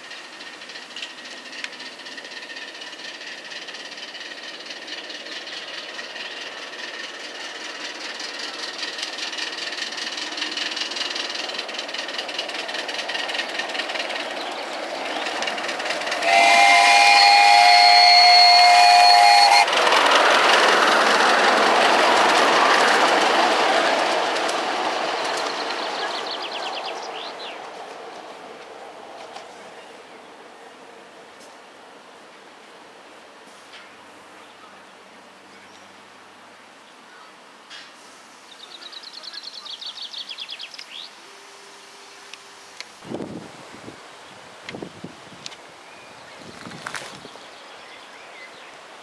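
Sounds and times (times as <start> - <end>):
miniature steam locomotive running: 0.0 - 30.8, 46.2 - 49.0
steam whistle: 16.2 - 19.8.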